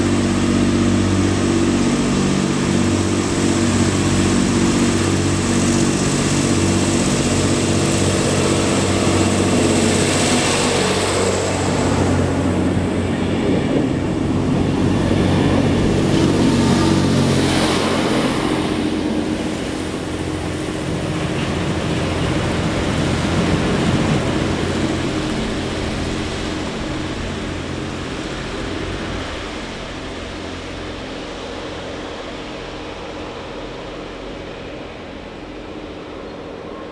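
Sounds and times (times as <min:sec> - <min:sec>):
train diesel engines droning: 0:00.0 - 0:36.9.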